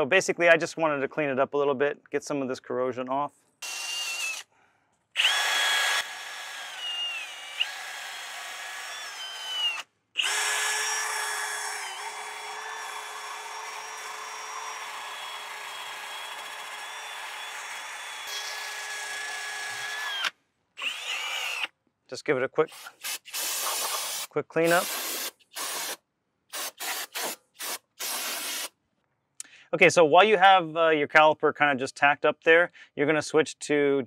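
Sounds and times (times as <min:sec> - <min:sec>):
drill wire brush scraping metal: 0:22.7 - 0:28.7.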